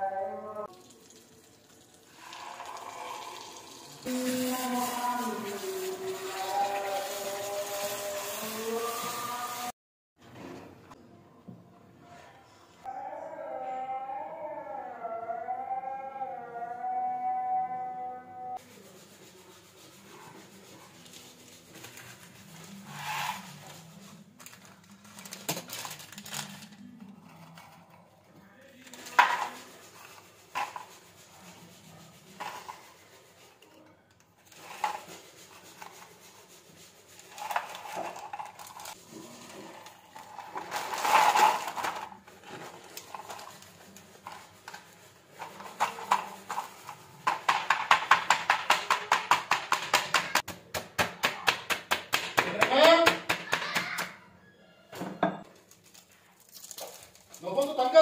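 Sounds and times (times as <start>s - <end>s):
plastic bag rustling and crinkling: 21.0s - 27.8s, 37.2s - 47.2s, 55.6s - 58.0s
rolling pin pounding biscuits: 47.2s - 54.0s.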